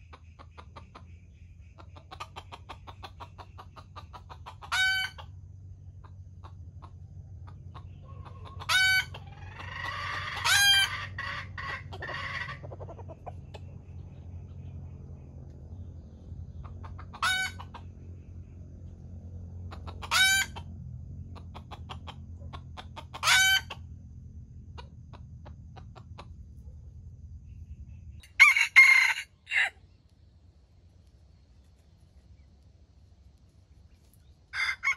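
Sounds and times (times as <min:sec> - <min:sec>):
clucking and chatter: 0:00.0 - 0:26.7
rooster crowing: 0:08.0 - 0:12.8, 0:28.2 - 0:29.9, 0:34.5 - 0:34.9.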